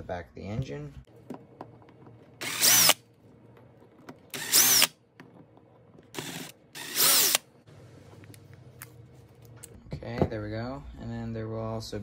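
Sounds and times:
cordless drill whining: 0:02.4 - 0:03.0, 0:04.3 - 0:05.0, 0:06.2 - 0:07.4.

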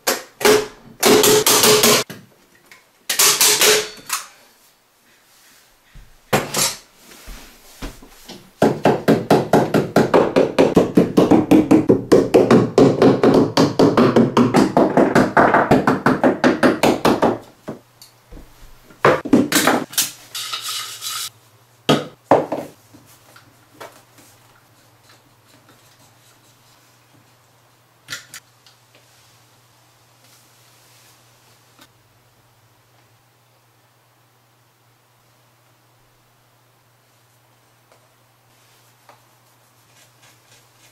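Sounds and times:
hammer striking wood: 0:00.1 - 0:02.0, 0:08.6 - 0:17.8.

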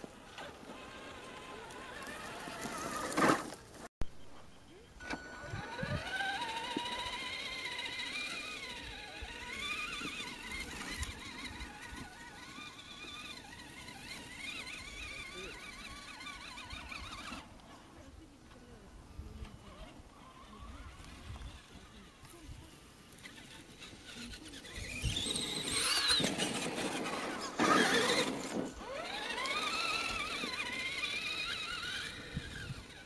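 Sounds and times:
electric motor whining: 0:00.3 - 0:03.6, 0:05.0 - 0:17.7, 0:18.5 - 0:33.0.

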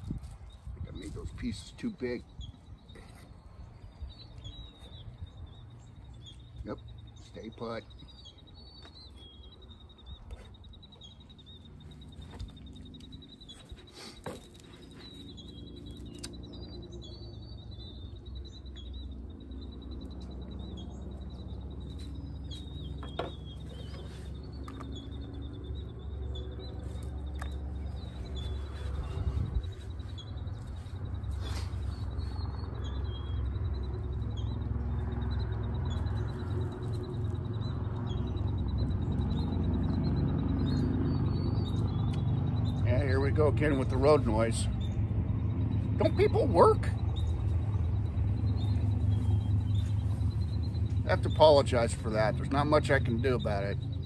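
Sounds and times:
birds chirping: 0:00.0 - 0:54.0
road traffic rumble: 0:00.0 - 0:54.0.

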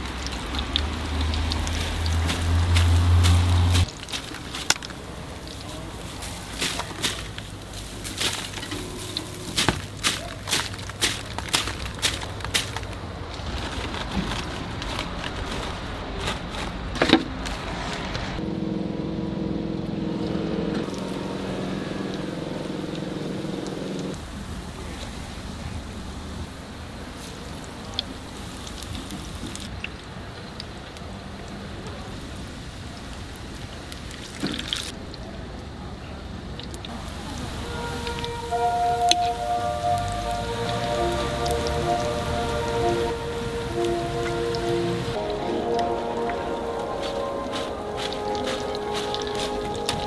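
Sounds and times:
deep-frying oil sizzling: 0:00.0 - 0:09.7, 0:37.3 - 0:46.7
street noise: 0:00.0 - 0:50.0
droning hum: 0:18.4 - 0:27.0.

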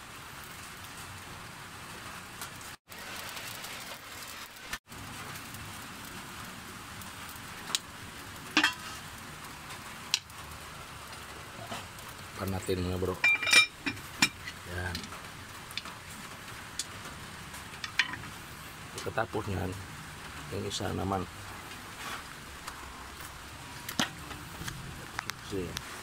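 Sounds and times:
rain hissing: 0:00.0 - 0:26.0.

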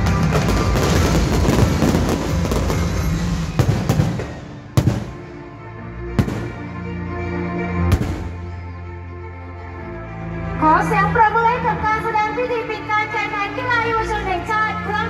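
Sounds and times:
fireworks bangs and crackling: 0:00.0 - 0:05.4, 0:06.2 - 0:06.7, 0:07.9 - 0:08.4
music playing: 0:00.0 - 0:15.0.

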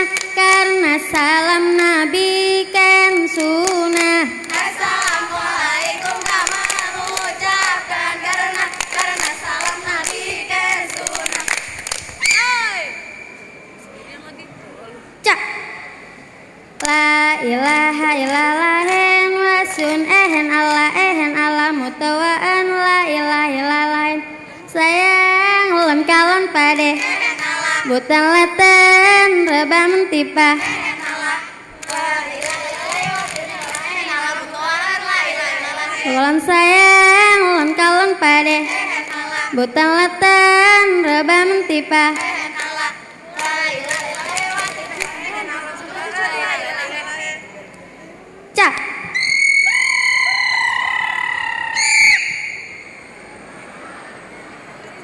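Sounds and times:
woman singing a chant: 0:00.0 - 0:11.9, 0:16.8 - 0:47.6
sharp hand claps: 0:03.4 - 0:12.5, 0:31.8 - 0:34.0, 0:42.1 - 0:42.7, 0:43.4 - 0:45.2.

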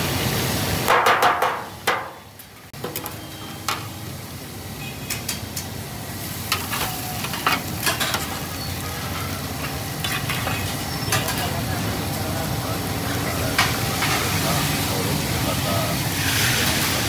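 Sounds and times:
fish sizzling in hot oil: 0:03.1 - 0:17.0
metal utensils clattering: 0:06.5 - 0:11.7.

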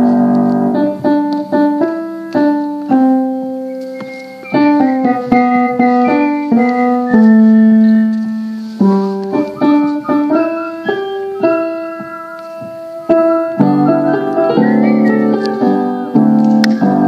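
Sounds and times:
piano playing a dance tune: 0:00.0 - 0:17.0.

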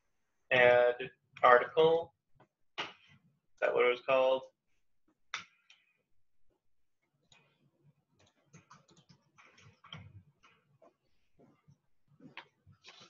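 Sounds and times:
typing on a computer keyboard: 0:08.2 - 0:10.6.

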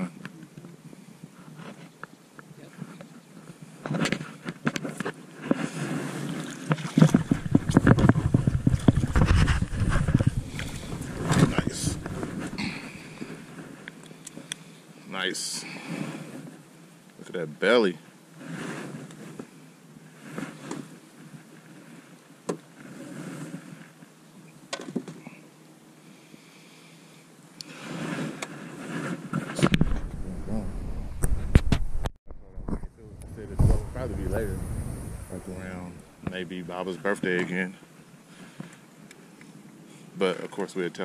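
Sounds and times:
low rustling handling noise: 0:02.7 - 0:14.5
heavy low microphone rumble: 0:07.2 - 0:13.4, 0:29.8 - 0:36.3.

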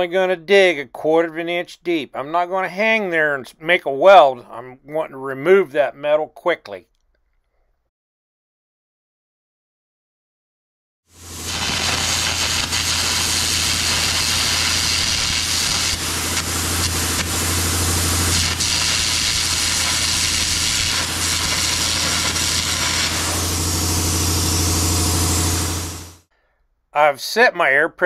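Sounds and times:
low hum: 0:11.2 - 0:26.2
arc torch rushing blast: 0:11.2 - 0:26.3.

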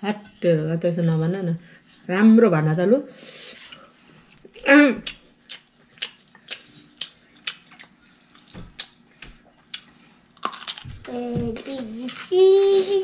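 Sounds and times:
mouth chewing and smacking: 0:05.0 - 0:11.0.

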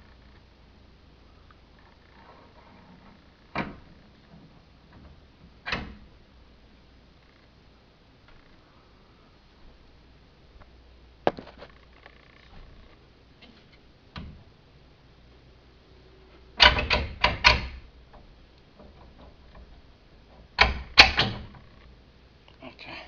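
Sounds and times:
sharp clattering knocks: 0:16.6 - 0:21.7.

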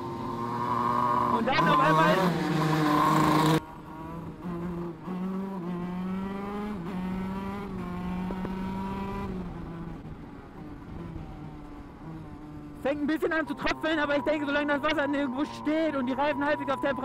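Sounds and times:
two-stroke kart engine revving: 0:00.0 - 0:10.0.

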